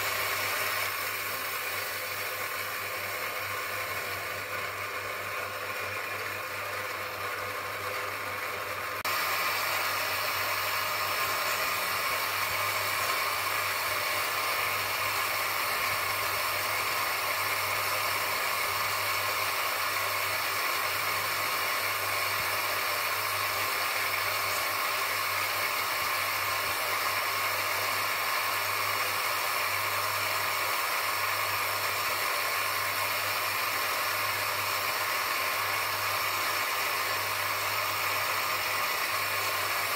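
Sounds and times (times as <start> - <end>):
bench grinder motor hum: 0.0 - 39.9
stone grinding on abrasive wheel: 7.4 - 17.0.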